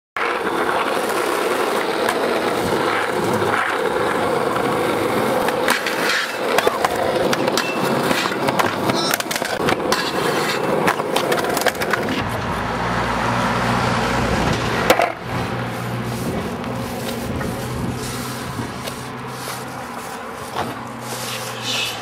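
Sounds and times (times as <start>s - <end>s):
skateboard clack: 0.2s - 12.6s, 14.4s - 19.2s
skateboard wheels rolling on asphalt: 0.2s - 22.0s.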